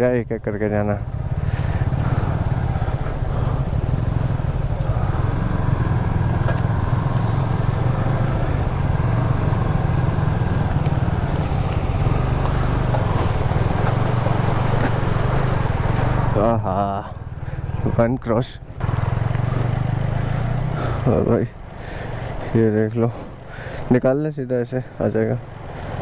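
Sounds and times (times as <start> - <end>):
motorcycle engine running: 0.8 - 22.6
water rushing: 1.4 - 16.6.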